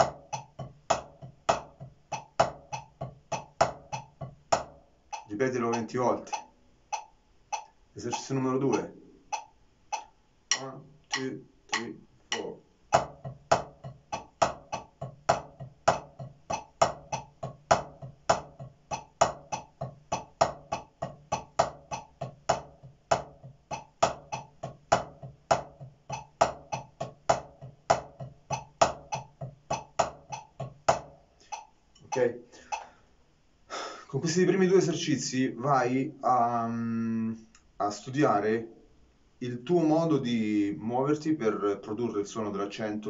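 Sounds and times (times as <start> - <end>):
drumsticks on a practice pad: 0.0 - 32.9.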